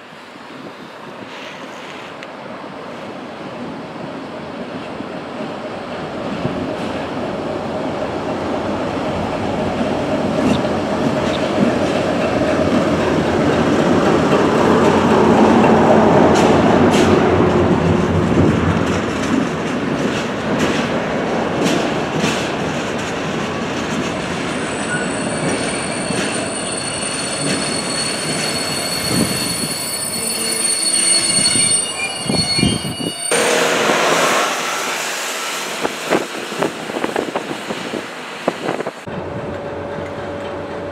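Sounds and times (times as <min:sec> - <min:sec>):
diesel locomotive engine: 0:00.0 - 0:40.9
wheels clicking over rail joints: 0:09.7 - 0:26.4
high wheel squeal: 0:24.6 - 0:33.7.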